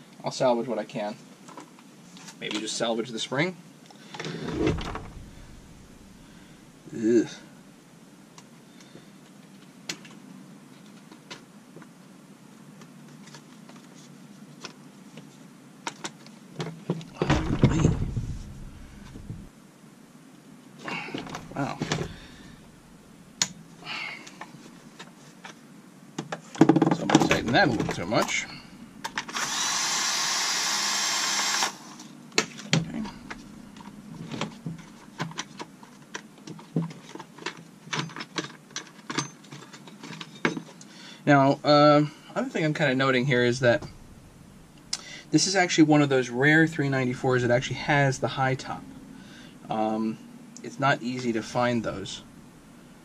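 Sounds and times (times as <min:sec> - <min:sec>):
loud steady hiss: 0:02.8 - 0:08.8, 0:17.1 - 0:24.9, 0:27.1 - 0:34.8, 0:40.8 - 0:53.0
clattering scrape with low rumble: 0:04.3 - 0:06.5, 0:17.5 - 0:19.5
clicks and knocks of metal parts: 0:32.4 - 0:40.9.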